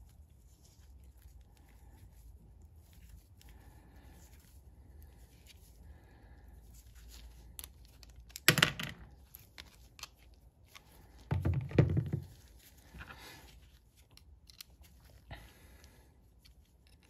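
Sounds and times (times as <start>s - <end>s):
knocking and rustling: 11.3s - 12.5s.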